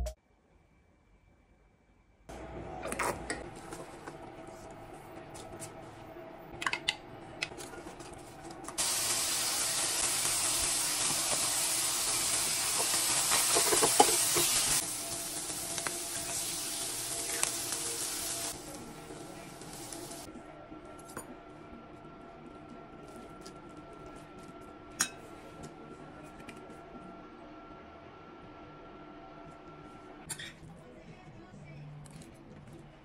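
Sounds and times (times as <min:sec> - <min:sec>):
food sizzling in a pan: 0:08.8 - 0:20.3
utensils clicking against pan: 0:12.7 - 0:14.7.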